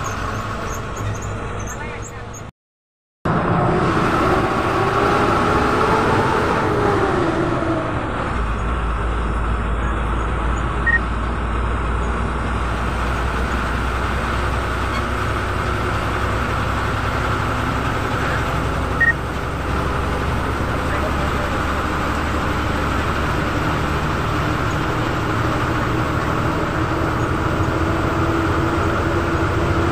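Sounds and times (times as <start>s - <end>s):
bus engine drone: 0.0s - 2.5s, 3.2s - 29.9s
short high beeps: 10.8s - 11.0s.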